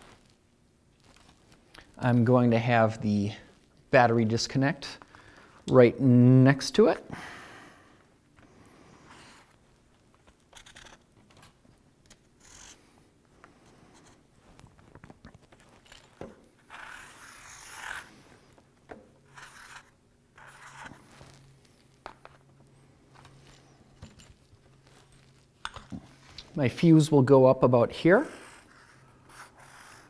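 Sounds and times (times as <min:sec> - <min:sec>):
marker scraping on cardboard: 0:10.5 - 0:11.0, 0:16.7 - 0:18.1, 0:19.3 - 0:21.4, 0:28.4 - 0:30.0.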